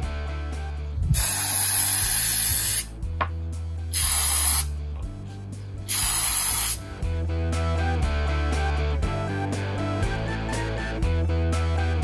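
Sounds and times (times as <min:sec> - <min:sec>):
aerosol spray can hissing: 0:01.1 - 0:02.9, 0:03.9 - 0:04.7, 0:05.9 - 0:06.9.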